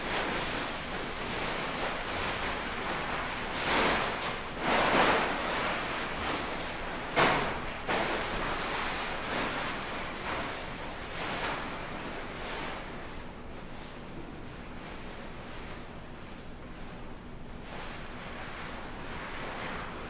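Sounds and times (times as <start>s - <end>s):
fabric rustling and swishing: 17.6s - 20.0s.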